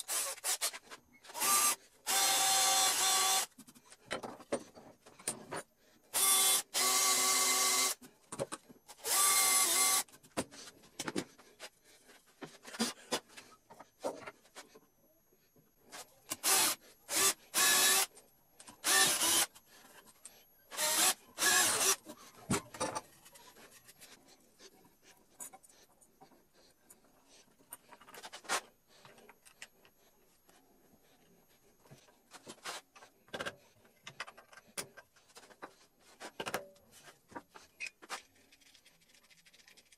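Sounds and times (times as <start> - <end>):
power drill boring into wood: 1.3 - 3.5, 6.2 - 8.0, 9.0 - 10.0, 16.4 - 18.1, 18.8 - 19.5, 20.8 - 22.0.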